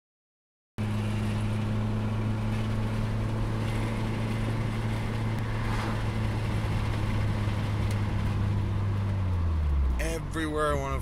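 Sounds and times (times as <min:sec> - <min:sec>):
car engine drone from cabin: 0:00.8 - 0:11.0.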